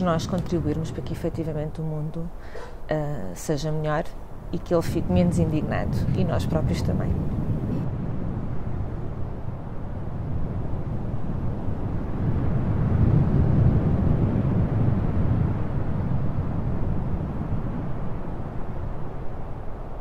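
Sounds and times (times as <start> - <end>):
distant traffic rumble: 0.0 - 12.1.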